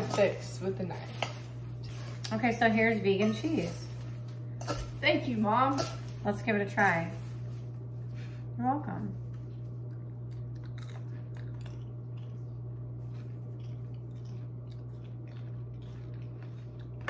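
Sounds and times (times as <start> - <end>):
popcorn crunching in metal bowl: 0.0 - 7.4.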